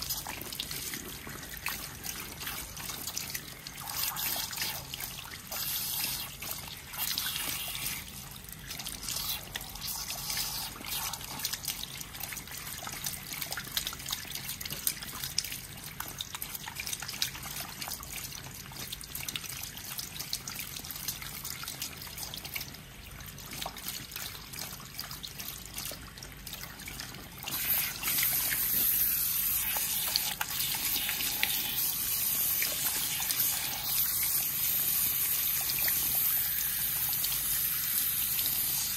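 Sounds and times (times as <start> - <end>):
water splashing into sink: 0.0 - 38.9
shower head spraying water: 27.5 - 38.9.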